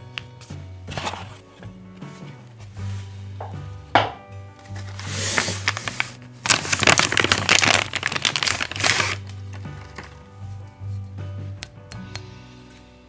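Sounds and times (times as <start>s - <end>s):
background music: 0.0s - 13.0s
knock: 3.4s - 4.2s
plastic bag crinkling: 4.7s - 10.2s.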